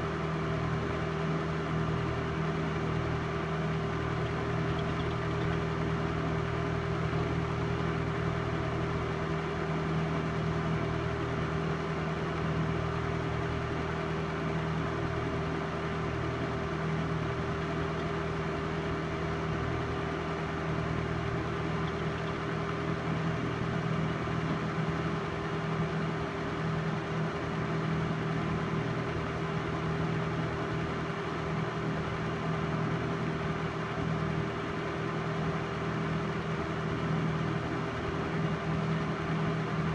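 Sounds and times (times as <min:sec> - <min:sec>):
film projector motor whirring: 0:02.1 - 0:09.1.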